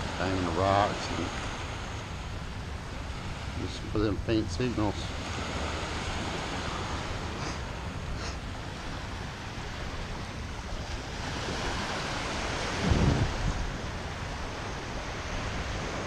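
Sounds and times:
wind rumbling on microphone: 0:00.0 - 0:16.0
small surf breaking: 0:04.7 - 0:16.0.

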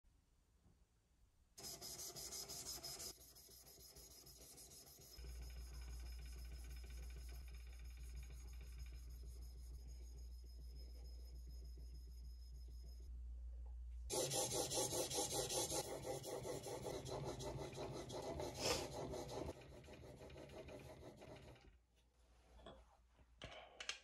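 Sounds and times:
steady low hum: 0:05.2 - 0:19.6
steel rubbing on waterstone: 0:14.1 - 0:19.6.

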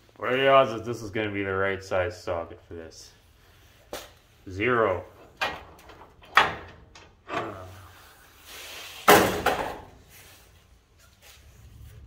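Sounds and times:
socket wrench clanking on metal: 0:05.2 - 0:07.8.

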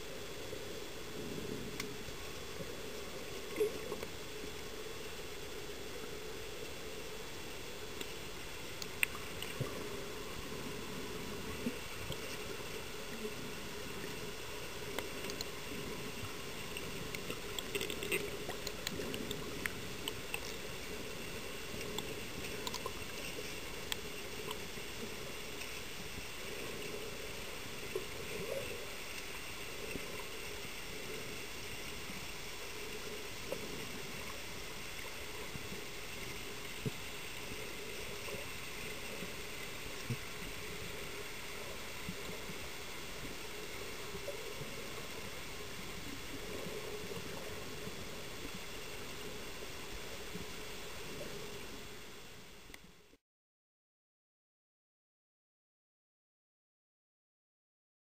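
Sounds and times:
muffled underwater noise: 0:00.0 - 0:52.7
faint clicks and taps: 0:14.9 - 0:15.6, 0:21.7 - 0:24.7.

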